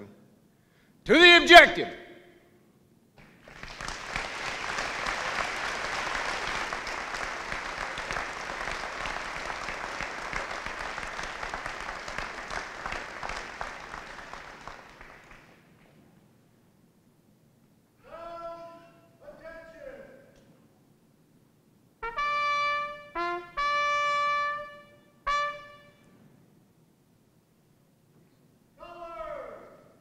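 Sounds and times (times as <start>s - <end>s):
audience applauding: 3.2s - 16.0s.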